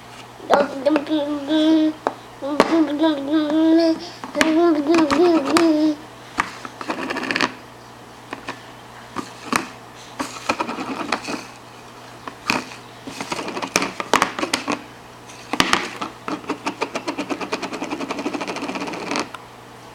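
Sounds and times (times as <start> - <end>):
hands tapping on high chair: 2.6 - 3.0, 4.3 - 5.8, 9.2 - 11.4, 12.4 - 14.8, 15.6 - 19.3.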